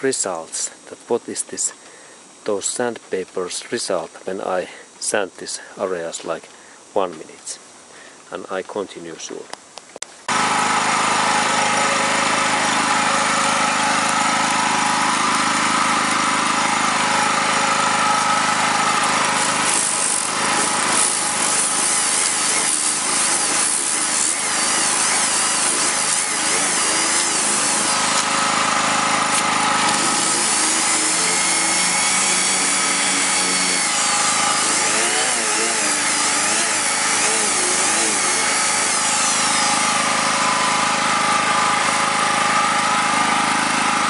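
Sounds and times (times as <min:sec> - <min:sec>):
orbital sander on painted metal: 0:10.3 - 0:44.0.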